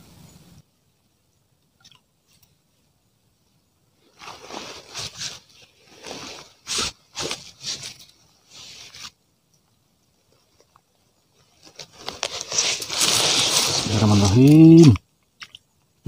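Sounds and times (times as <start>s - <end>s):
microphone handling rustle: 11.4s - 15.0s.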